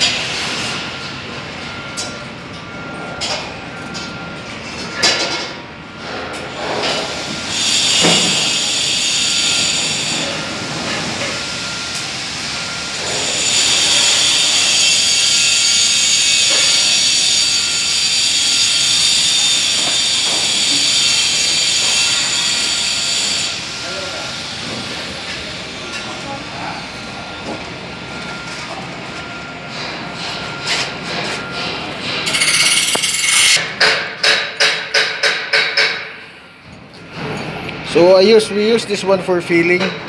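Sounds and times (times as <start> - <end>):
scraping strokes on stone joint: 32.3 - 33.6.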